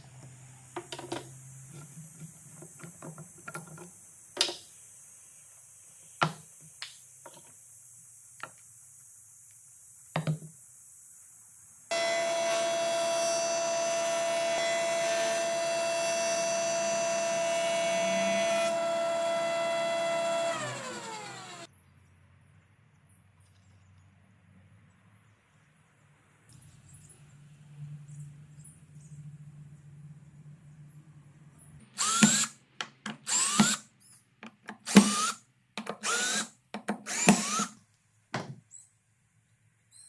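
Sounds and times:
jointer whining and spinning down: 11.9 - 21.7, 32.0 - 32.6, 33.2 - 33.8, 37.1 - 37.8.

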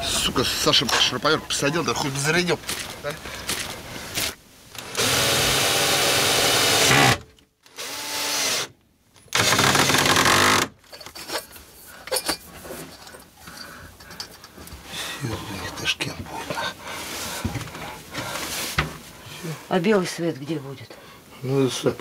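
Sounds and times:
cordless drill running: 4.8 - 8.7.

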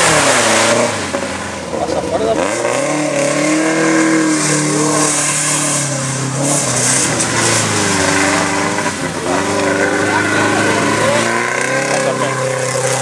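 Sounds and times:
engine revving hard: 0.0 - 1.2, 1.9 - 13.0.

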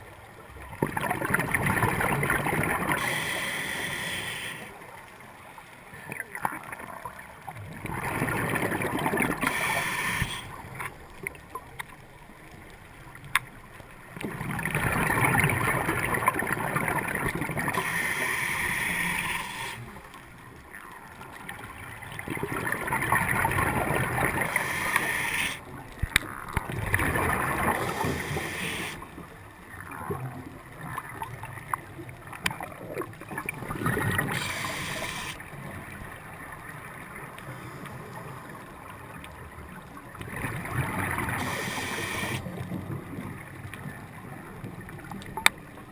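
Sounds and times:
diver breathing through regulator: 2.9 - 4.8, 9.3 - 10.6, 17.6 - 20.0, 24.2 - 25.6, 27.6 - 29.0, 34.2 - 35.4, 41.3 - 42.5
bubbling exhaled air: 26.8 - 29.1.

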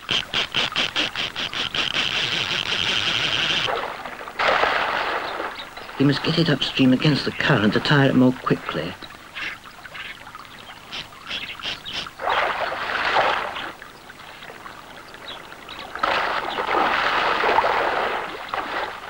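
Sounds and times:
fish splashing in water: 0.0 - 7.5, 9.2 - 19.0.

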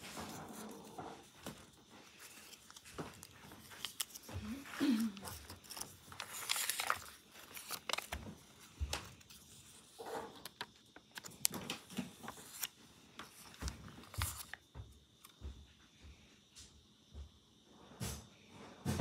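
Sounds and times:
paper rustling in plastic tub: 1.4 - 14.6.

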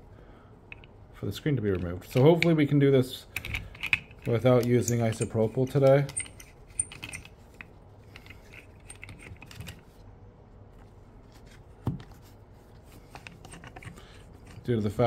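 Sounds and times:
hands clicking and tapping metal clamp: 1.7 - 2.6, 3.3 - 9.8.

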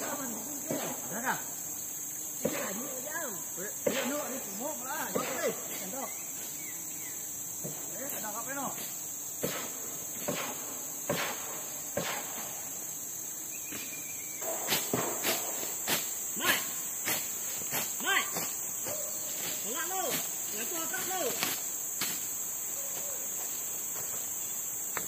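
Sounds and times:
forest insects droning: 0.0 - 25.0
sharp knocks: 14.4 - 15.7.

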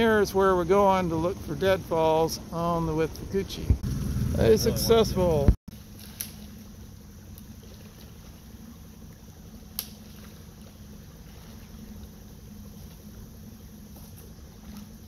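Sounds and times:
faint steady low hum: 0.0 - 15.0.

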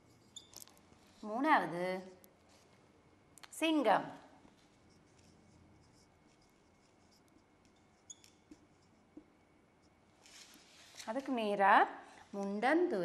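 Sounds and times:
marker squeaking on whiteboard: 0.0 - 0.8, 4.7 - 10.0.

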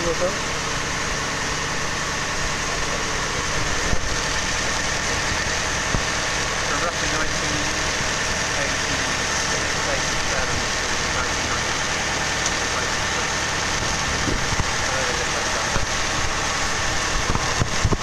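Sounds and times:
engine idling: 0.0 - 18.0.

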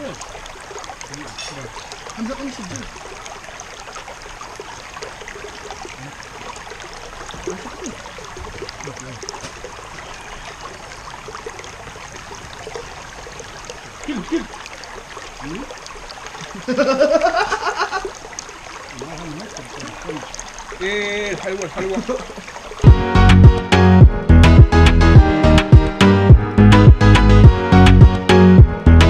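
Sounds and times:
stream water rushing: 0.0 - 24.0
faint voices: 18.9 - 22.6.

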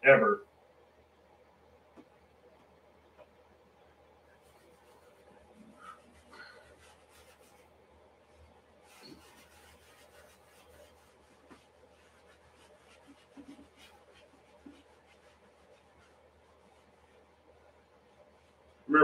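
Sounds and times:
paint sponge rubbing on canvas: 4.1 - 19.0.

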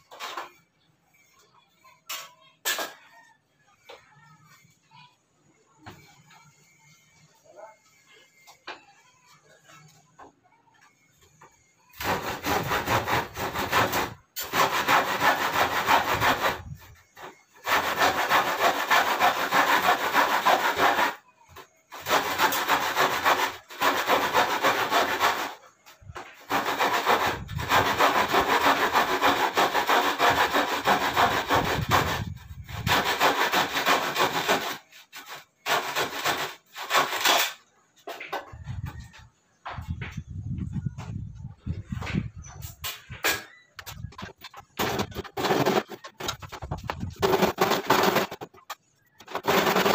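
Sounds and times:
hand saw cutting wood: 11.9 - 38.2, 43.2 - 49.9.

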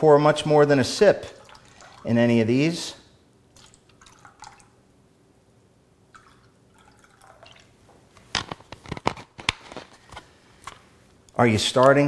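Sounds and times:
soda splashing into cups: 1.3 - 2.2, 3.5 - 4.8, 6.1 - 7.8.

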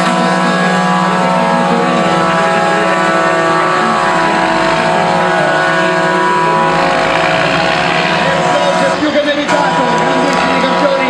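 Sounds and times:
truck engine at high revs: 0.0 - 11.0.

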